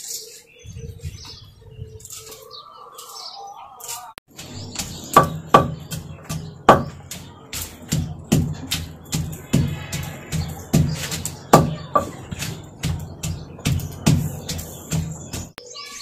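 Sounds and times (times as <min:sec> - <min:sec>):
birds chirping: 0:00.0 - 0:16.0
wooden pestle pounding in bowl: 0:04.3 - 0:15.6.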